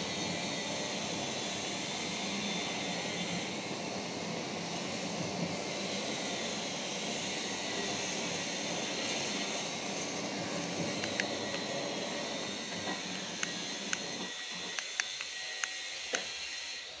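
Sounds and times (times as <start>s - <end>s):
electric motor running: 10.6s - 17.0s.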